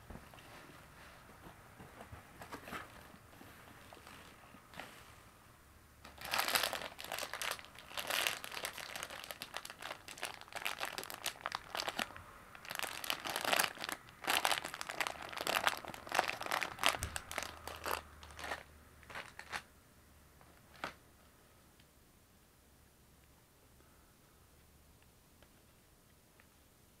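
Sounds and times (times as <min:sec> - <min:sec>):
plastic packaging crinkling: 0:06.0 - 0:19.7.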